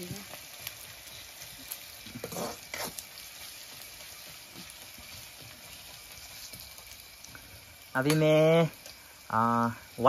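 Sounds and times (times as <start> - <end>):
onions and meat sizzling: 0.0 - 10.0
metal spatula scraping pan: 2.0 - 3.1.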